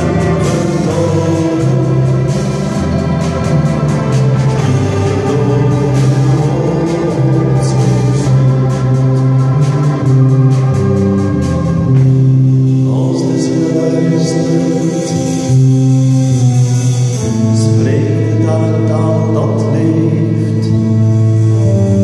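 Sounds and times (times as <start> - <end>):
men's choir singing: 0.0 - 16.0.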